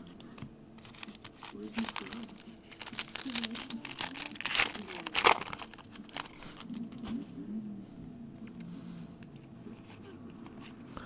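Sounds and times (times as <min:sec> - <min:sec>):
foil wrapper crinkling: 0:00.8 - 0:06.9
cards being handled: 0:00.8 - 0:07.2.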